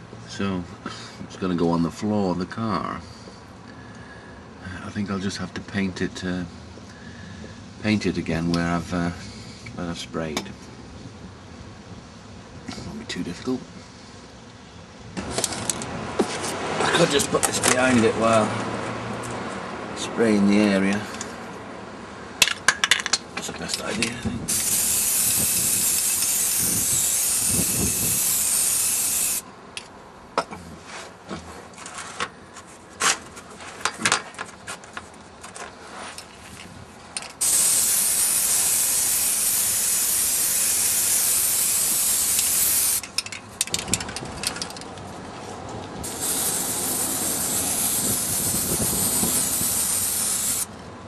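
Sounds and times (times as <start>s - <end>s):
spray can hissing: 24.5s - 29.4s, 37.4s - 43.0s, 46.0s - 50.7s.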